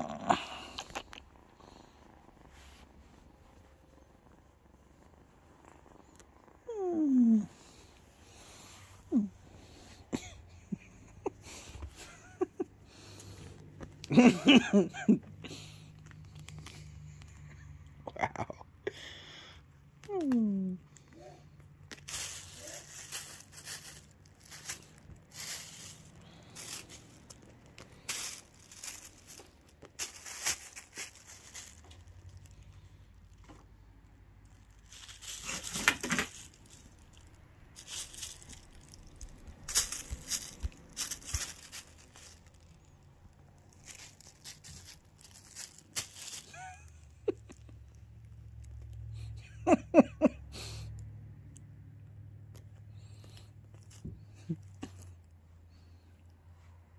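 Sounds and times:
plastic bag crinkling: 0:21.8 - 0:33.6, 0:34.4 - 0:47.7.

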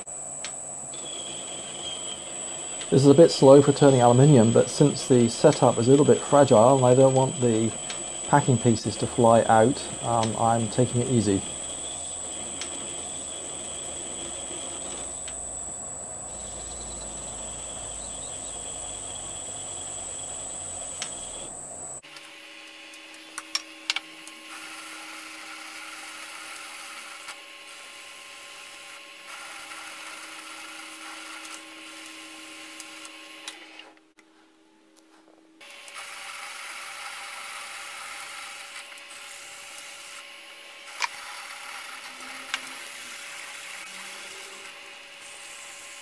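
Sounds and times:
metal lathe running: 0:00.9 - 0:33.8, 0:35.6 - 0:46.0
sharp clicks: 0:07.2 - 0:08.1, 0:10.1 - 0:10.5, 0:20.9 - 0:21.2.

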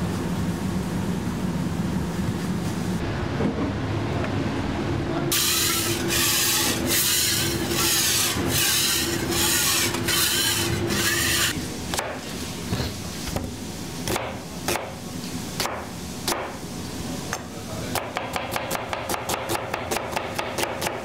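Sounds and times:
steady background hum: 0:00.0 - 0:21.0
scraper scraping steel griddle: 0:05.4 - 0:11.6.

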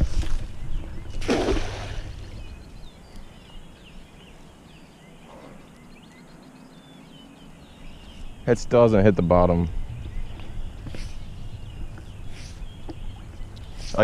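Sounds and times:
birds chirping: 0:00.0 - 0:14.0
net splashing into water: 0:01.2 - 0:02.1.

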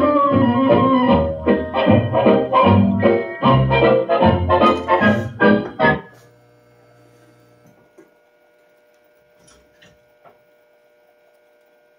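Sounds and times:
jukebox record playing: 0:00.0 - 0:06.2
jukebox electrical hum: 0:00.0 - 0:11.9.

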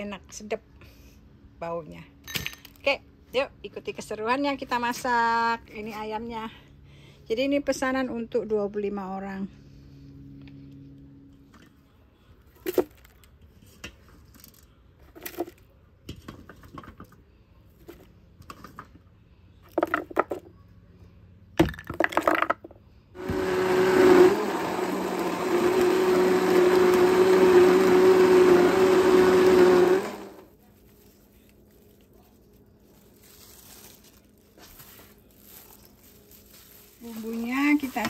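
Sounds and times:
blender motor running: 0:23.2 - 0:30.5.

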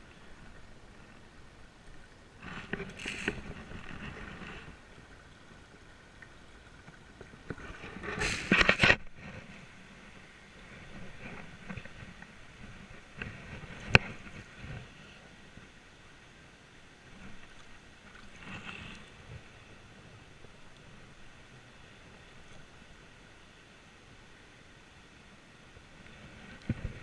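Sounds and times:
water splashing: 0:00.0 - 0:15.6.

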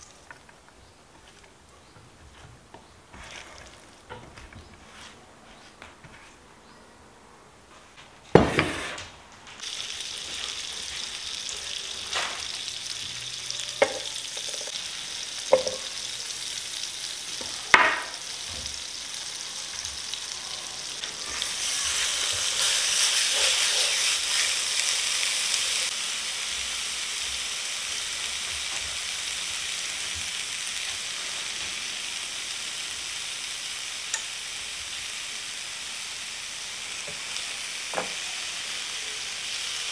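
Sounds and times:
meat sizzling in a pan: 0:09.6 - 0:39.9.

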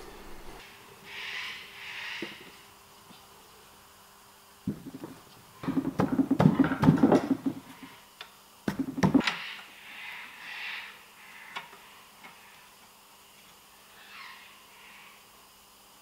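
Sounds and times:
metal knocks and rattles: 0:04.7 - 0:07.8, 0:08.7 - 0:09.2.

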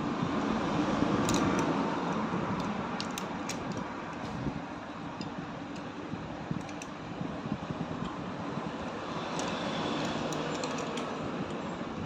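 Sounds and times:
steady background noise: 0:00.0 - 0:12.0
spanner clicking on metal bolts: 0:01.2 - 0:04.2, 0:06.6 - 0:07.0, 0:09.3 - 0:11.6.

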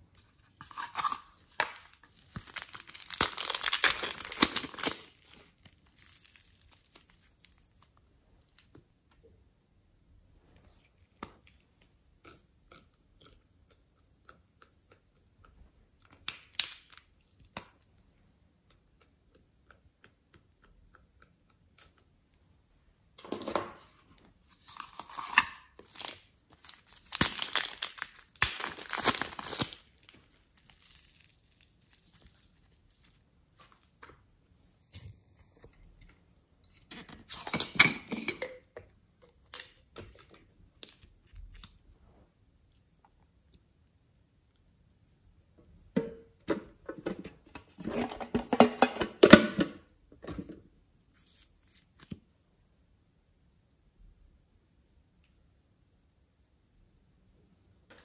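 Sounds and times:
plastic packet crinkling and tearing: 0:00.7 - 0:08.6, 0:24.6 - 0:34.0.

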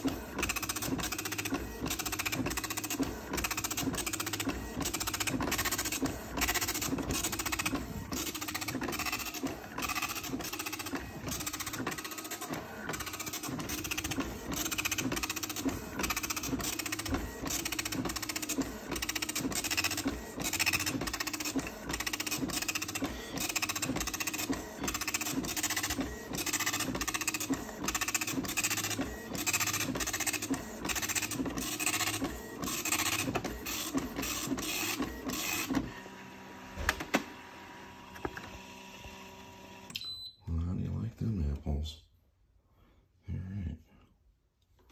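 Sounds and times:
printer click: 0:00.0 - 0:35.9
dot matrix printer printing: 0:00.0 - 0:39.9.

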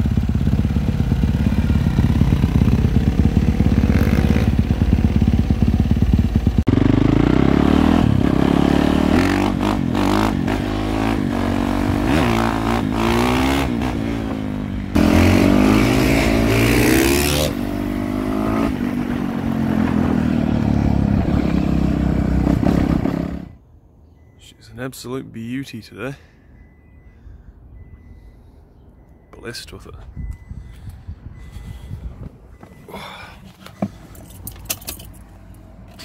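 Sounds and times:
dirt bike engine revving: 0:00.0 - 0:23.6.

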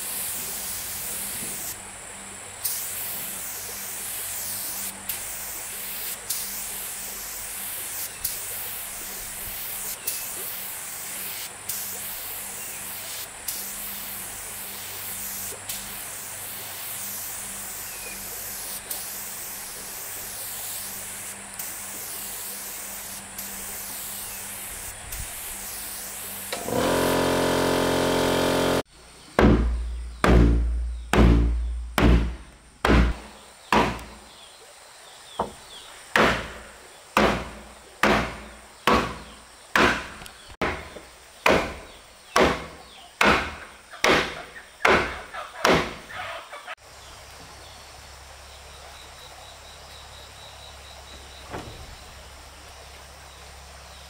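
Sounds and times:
steady hiss: 0:00.0 - 0:29.3
loud steady hum: 0:26.5 - 0:28.9.

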